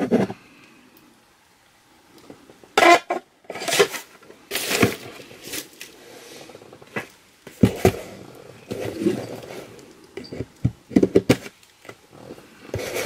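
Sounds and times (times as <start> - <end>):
packaging rustling: 3.5 - 6.0.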